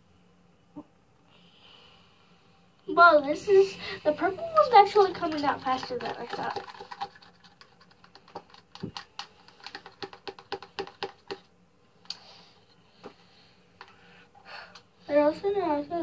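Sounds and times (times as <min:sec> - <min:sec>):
spoon scraping a plastic cup: 0:04.6 - 0:11.4.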